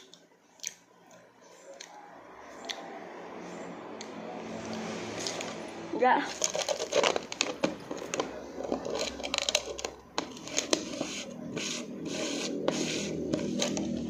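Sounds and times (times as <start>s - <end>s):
plastic lid scraping jar: 6.3s - 14.0s.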